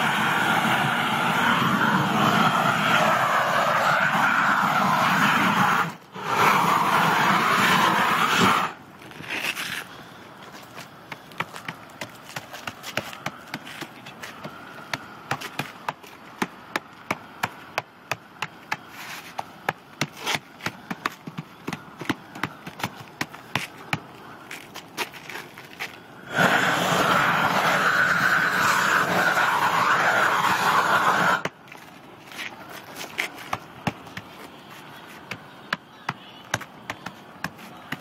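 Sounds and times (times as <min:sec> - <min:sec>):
torch hissing: 0:00.0 - 0:08.8, 0:26.2 - 0:31.5
torch flame rushing: 0:00.0 - 0:10.0, 0:26.1 - 0:31.6.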